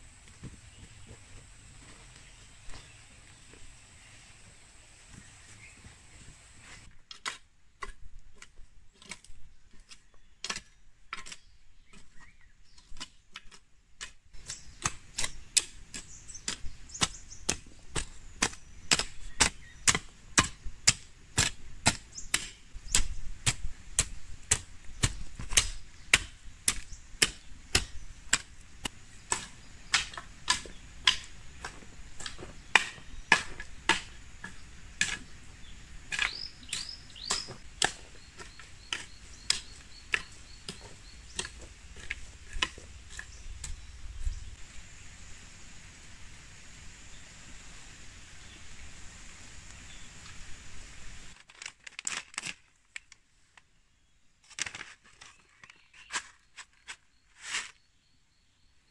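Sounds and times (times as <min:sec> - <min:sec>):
hand tool chopping: 0:12.8 - 0:35.3, 0:36.1 - 0:43.8.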